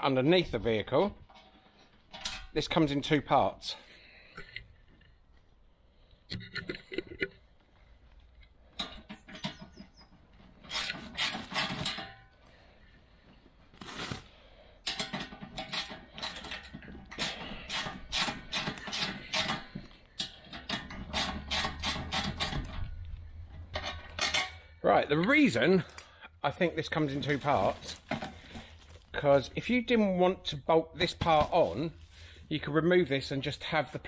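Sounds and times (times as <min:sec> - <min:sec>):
plastic wrap crinkling: 0:27.0 - 0:29.2.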